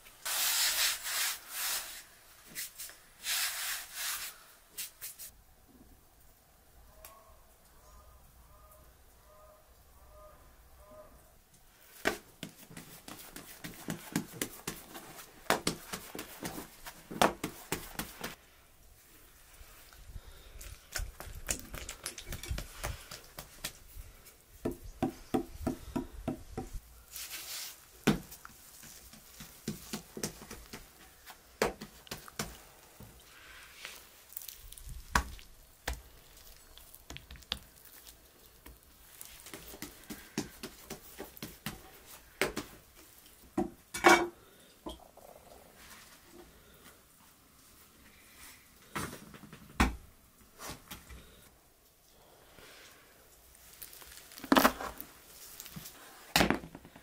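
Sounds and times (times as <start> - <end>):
hands rubbing dough: 11.9 - 18.4, 20.7 - 24.4, 26.6 - 43.2.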